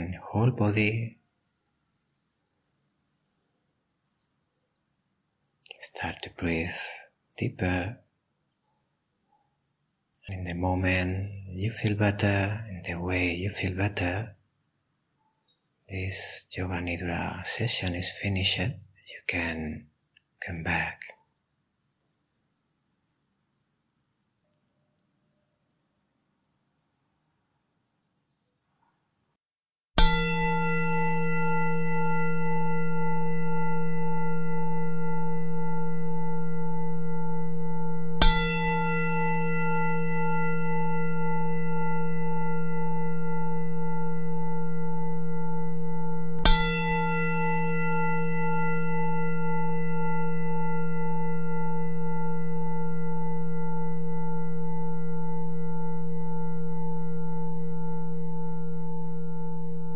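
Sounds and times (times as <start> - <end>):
singing bowl ringing: 30.0 - 59.9.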